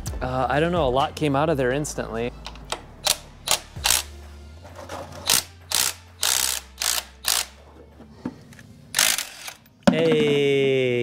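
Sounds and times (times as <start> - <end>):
ratchet wrench turning bolts: 3.0 - 4.1, 5.1 - 7.6, 8.9 - 9.7.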